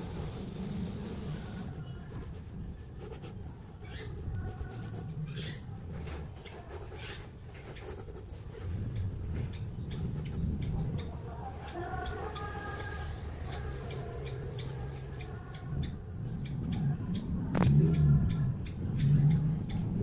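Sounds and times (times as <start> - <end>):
pencil scratching on paper: 0.0 - 15.4.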